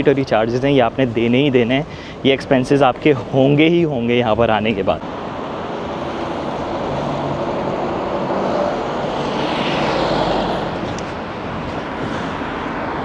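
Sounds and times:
street traffic noise: 0:00.0 - 0:13.0
lorry driving past: 0:05.1 - 0:11.3.

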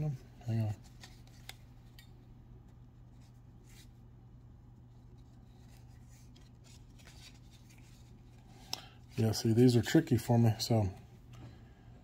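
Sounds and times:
steady low hum: 0:00.0 - 0:12.0
trading cards rustling: 0:04.9 - 0:09.6.

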